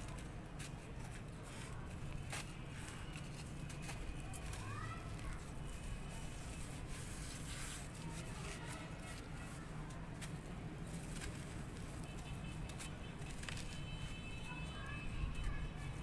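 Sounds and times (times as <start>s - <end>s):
dry dirt crunching and crumbling: 0.0s - 16.0s.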